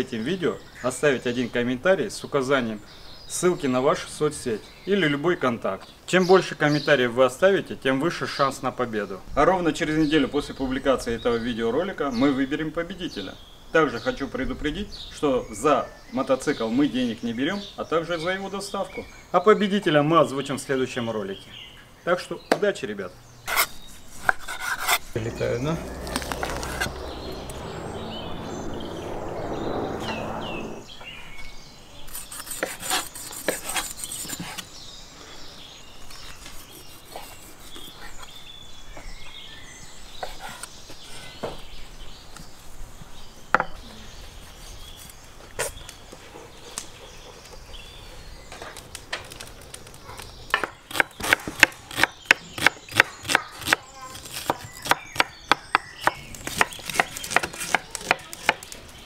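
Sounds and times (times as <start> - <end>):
low hum: 25.0 - 31.2.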